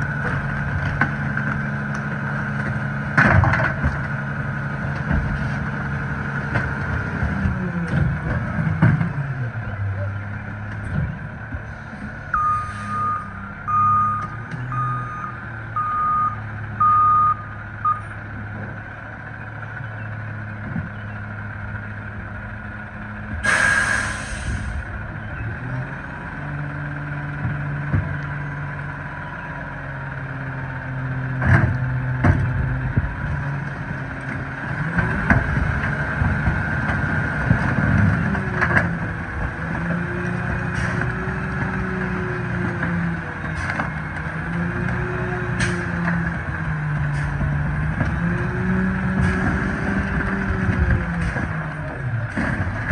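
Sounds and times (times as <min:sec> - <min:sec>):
garbage truck engine: 0:00.0 - 0:52.9
reversing alarm beeps: 0:12.3 - 0:18.1
air hiss: 0:23.4 - 0:24.8.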